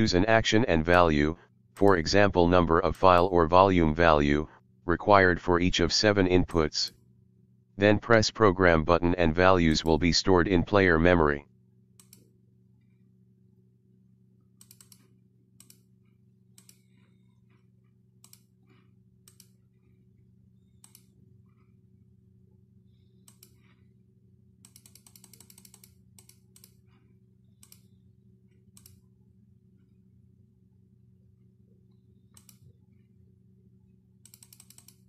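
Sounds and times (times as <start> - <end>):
low steady hum: 0.0 - 24.8
computer mouse and key clicks: 12.0 - 12.3, 14.6 - 15.9, 16.5 - 17.2, 18.2 - 19.6, 20.7 - 21.2, 23.2 - 23.8, 24.6 - 29.0, 32.3 - 32.8, 34.2 - 35.0.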